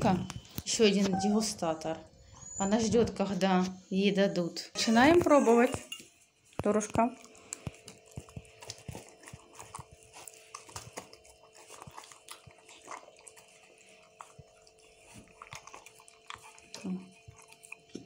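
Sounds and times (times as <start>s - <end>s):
dog licking and smacking: 6.5s - 18.0s.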